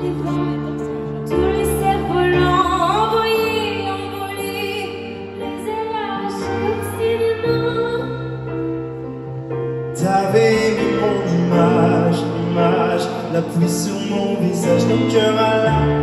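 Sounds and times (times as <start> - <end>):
woman singing into microphone: 0.0 - 8.6
sustained backing chords: 0.0 - 16.0.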